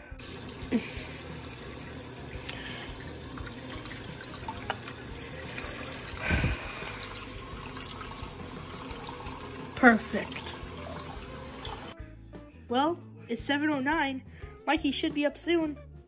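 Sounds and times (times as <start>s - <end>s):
tap water pouring into sink: 0.2s - 12.0s.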